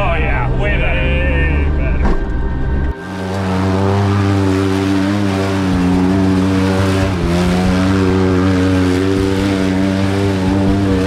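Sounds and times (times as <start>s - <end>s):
truck engine running: 0.0s - 11.0s.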